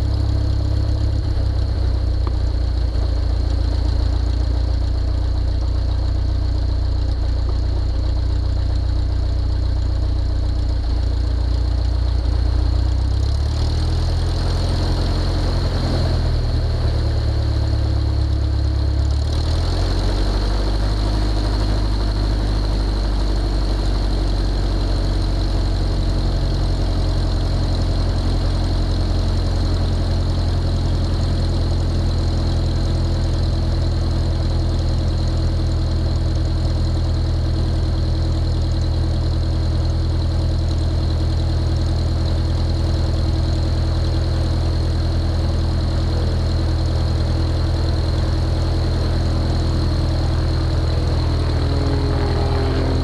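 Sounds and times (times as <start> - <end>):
propeller plane engine idling: 0.0 - 53.0.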